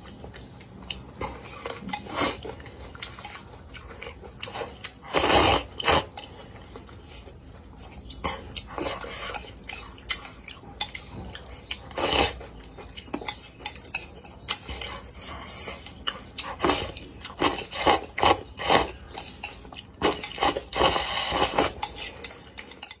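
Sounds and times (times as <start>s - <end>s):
slurping noodles: 4.5s - 7.3s, 11.9s - 12.4s, 16.5s - 19.0s, 20.0s - 22.2s.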